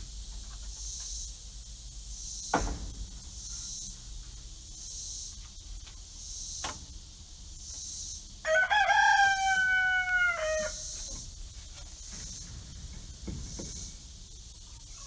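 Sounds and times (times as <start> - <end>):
rooster crowing: 8.4 - 11.2.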